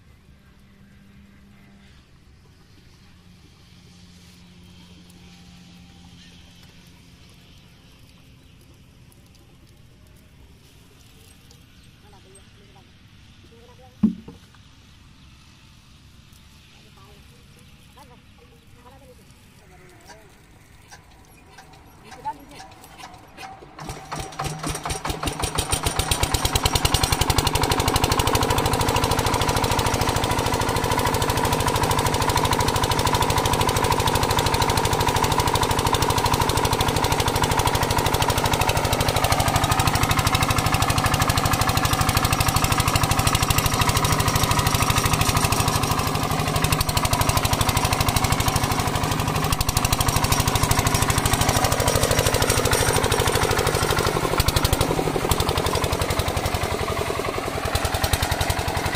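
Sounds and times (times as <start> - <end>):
water splashing onto ground: 7.3 - 11.8, 22.8 - 58.9
diesel engine running: 16.6 - 58.9.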